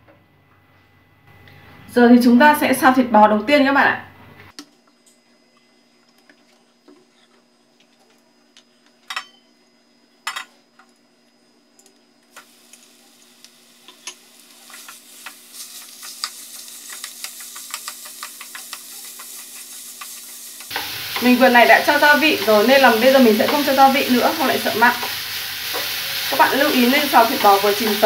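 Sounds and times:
meat sizzling in hot oil: 12.4s - 28.0s
chopsticks clicking against pan: 13.8s - 21.3s.

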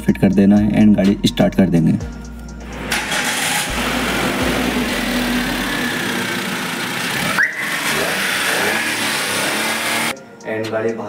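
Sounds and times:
car engine idling: 2.6s - 10.1s.

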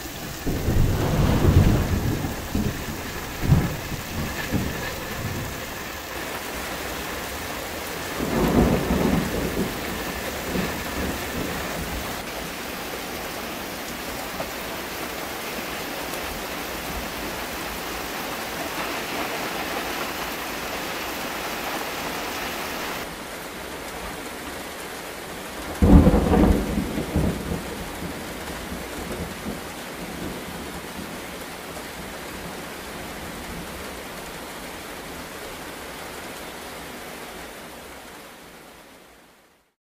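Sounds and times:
thunder rumbling: 0.0s - 12.3s, 25.8s - 31.0s
heavy rain falling: 0.0s - 39.8s.

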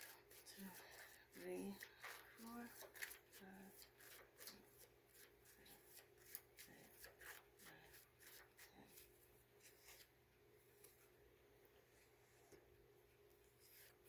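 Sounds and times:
cards being shuffled by hand: 0.0s - 10.1s.

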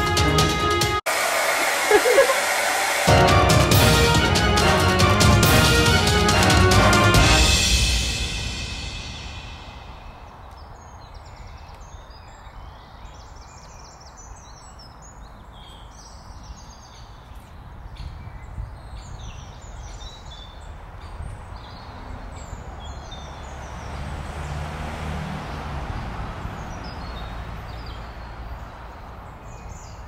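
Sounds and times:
birds chirping and trilling: 9.1s - 30.0s.

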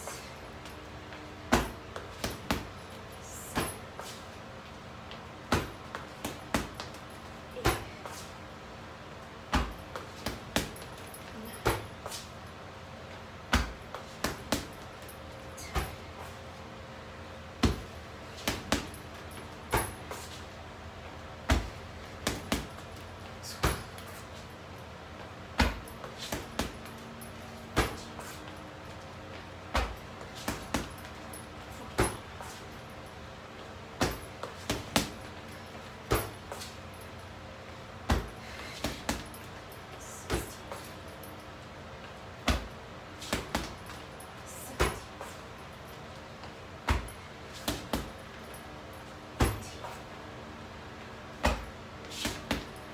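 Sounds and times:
gloved punches on heavy bag: 13.5s - 14.8s, 21.5s - 22.8s, 25.6s - 26.8s, 27.7s - 28.1s, 29.7s - 31.0s, 34.0s - 35.3s, 38.0s - 39.3s, 42.4s - 43.8s, 46.8s - 48.2s, 49.4s - 49.8s, 51.4s - 52.8s.

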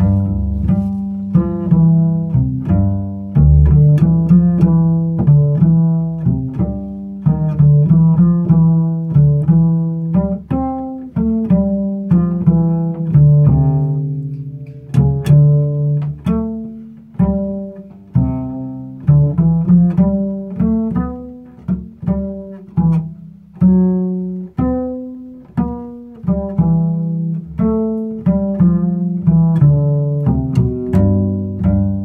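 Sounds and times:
double bass plucked notes: 0.0s - 32.0s.

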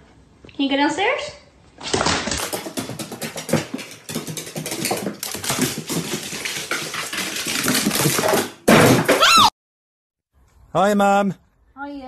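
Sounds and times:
dog claws clicking on wooden stairs: 1.9s - 8.5s.

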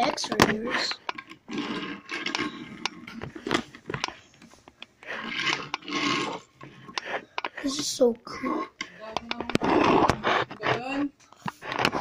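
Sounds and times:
scraping and rubbing handling noise: 0.0s - 12.0s.

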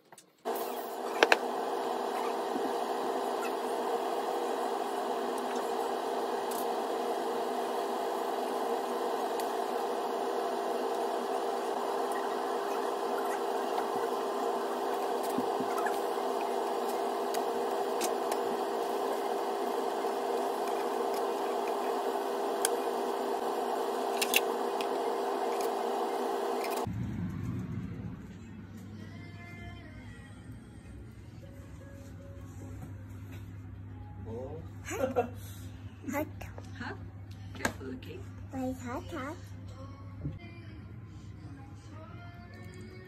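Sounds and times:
steady whirring: 0.5s - 28.6s
low hum: 0.5s - 31.4s.

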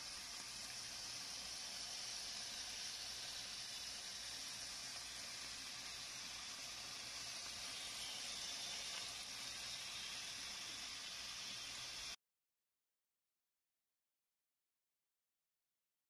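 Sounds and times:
meat sizzling in a pan: 0.0s - 12.2s.

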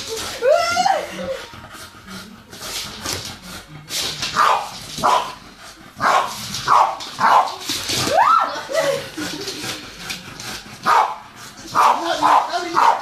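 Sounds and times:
dog barking: 4.4s - 5.4s, 6.0s - 7.6s, 10.8s - 13.0s.

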